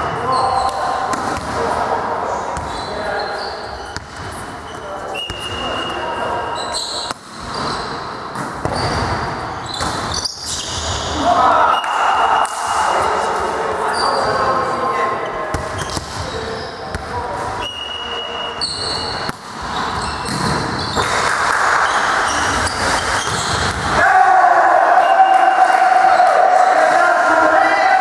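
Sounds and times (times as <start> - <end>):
shoe squeaks: 0.0 - 1.0, 2.6 - 11.2, 13.8 - 17.0, 17.6 - 21.2, 21.8 - 23.8
players' voices: 0.0 - 9.8, 10.5 - 28.0
crowd cheering and chanting: 23.8 - 28.0.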